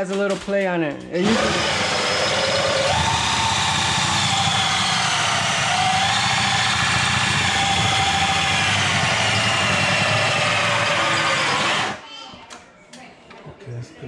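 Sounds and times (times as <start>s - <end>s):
cordless drill whining under load: 1.2s - 12.0s.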